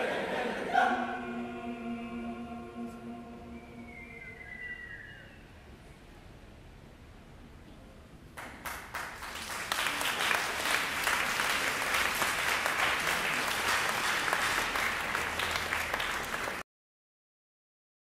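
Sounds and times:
audience applauding: 0:08.4 - 0:16.6.

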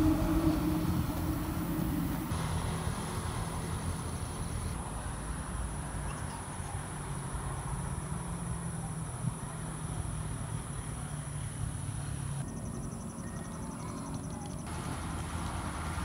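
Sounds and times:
low steady rumble: 0:00.0 - 0:05.9
crickets chirring: 0:00.0 - 0:16.0.

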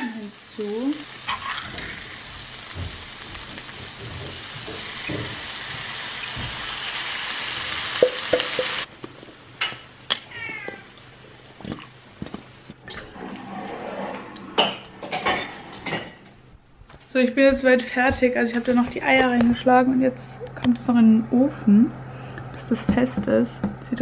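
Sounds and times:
food sizzling in frying pan: 0:00.0 - 0:10.2.

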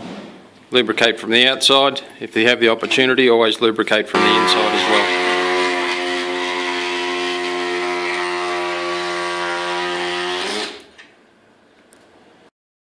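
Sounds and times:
power cutting tool whine: 0:04.2 - 0:10.8.

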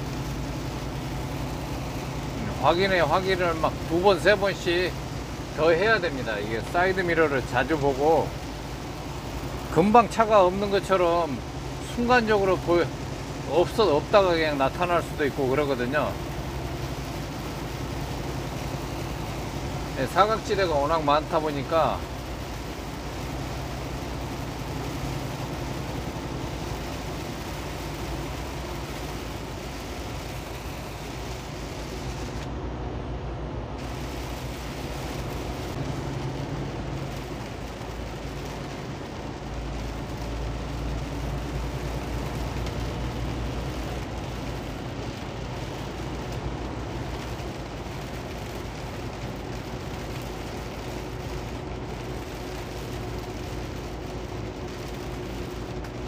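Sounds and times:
tyres hissing through water: 0:00.0 - 0:32.4
rain: 0:00.0 - 0:56.0
truck engine drone: 0:00.0 - 0:56.0.

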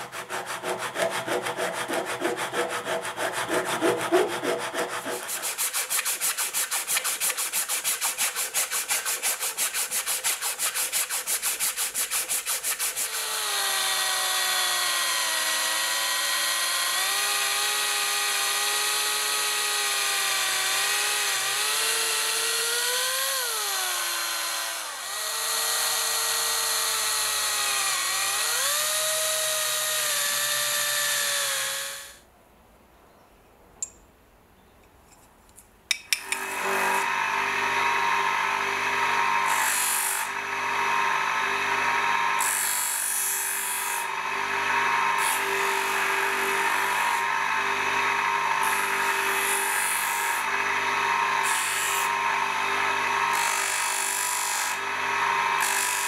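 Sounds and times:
sanding rod rubbing on metal: 0:00.0 - 0:13.2
electric drill whining: 0:13.0 - 0:32.2, 0:36.2 - 0:56.0.

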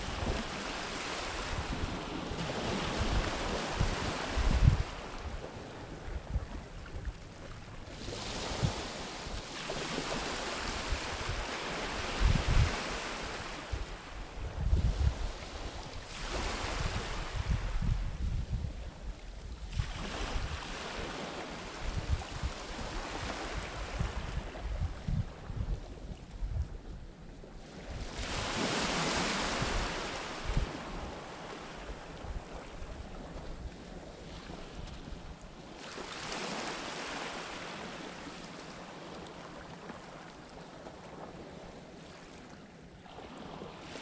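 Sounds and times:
rushing hiss of wind: 0:00.0 - 0:05.5, 0:10.1 - 0:27.0, 0:27.6 - 0:33.8
wind buffeting microphone: 0:00.0 - 0:09.5, 0:10.1 - 0:35.5.

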